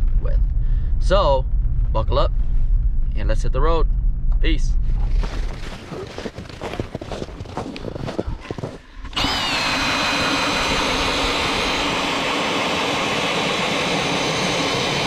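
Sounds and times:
ice auger motor whine: 0:09.0 - 0:15.0.

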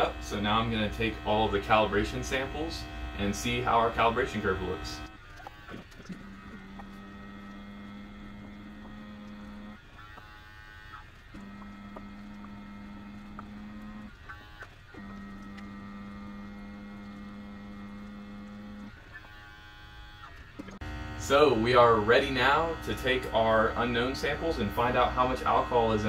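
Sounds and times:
small clicks: 0:00.0 - 0:20.8
small motor humming: 0:00.0 - 0:26.0.

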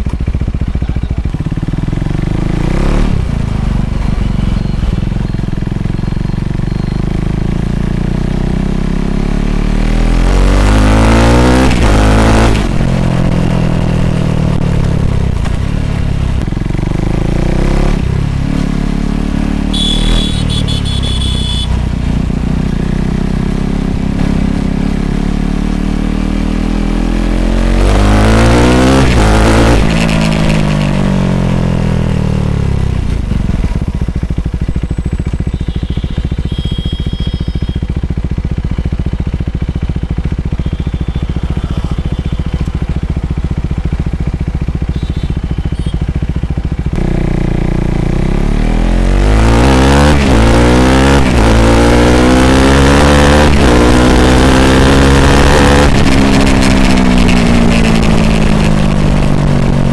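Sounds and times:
motorcycle engine revving: 0:00.0 - 0:59.9
high steady tone: 0:19.7 - 0:21.8.

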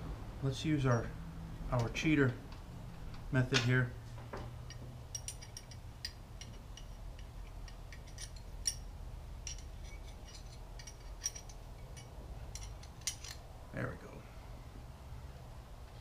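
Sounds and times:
low steady hum: 0:00.0 - 0:16.0
wrench clicking on metal bolts: 0:04.7 - 0:13.4.

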